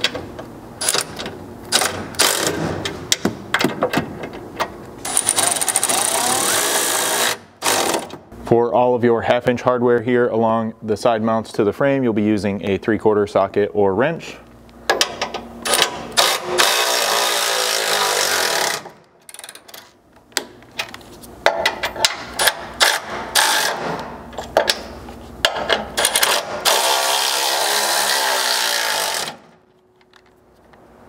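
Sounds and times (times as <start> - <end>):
electric ratchet motor running: 5.0 - 8.1, 15.7 - 18.9, 26.0 - 29.5
sharp ratchet clicks: 5.1 - 8.1.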